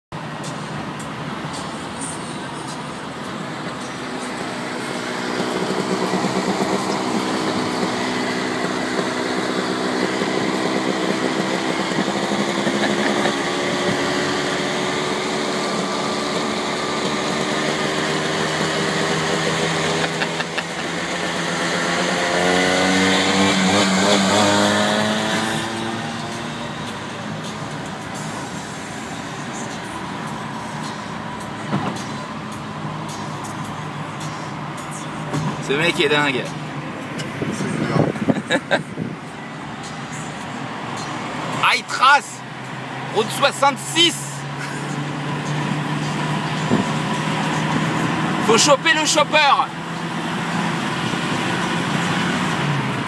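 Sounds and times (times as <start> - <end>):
tyre and road noise: 0.1 - 53.0
scooter engine running: 4.0 - 30.5.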